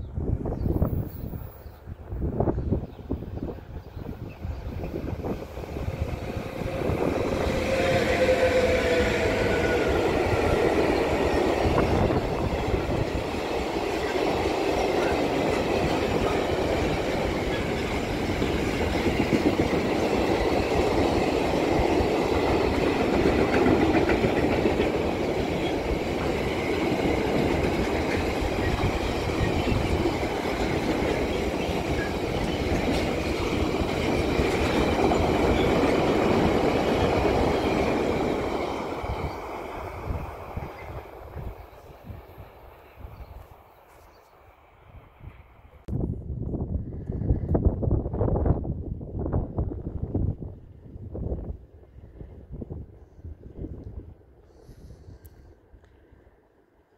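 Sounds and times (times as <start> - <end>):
wind buffeting microphone: 0.0 - 43.6, 44.9 - 55.4
locomotive whine: 3.4 - 44.0.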